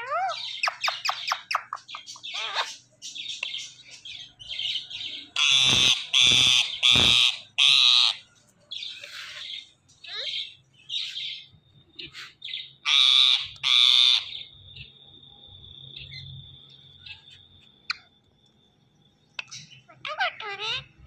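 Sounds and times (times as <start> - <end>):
parakeets chirping: 0.0 - 15.0, 19.3 - 21.0
parakeet harsh squawks: 2.2 - 2.8, 5.4 - 8.2, 12.8 - 14.4, 19.9 - 20.9.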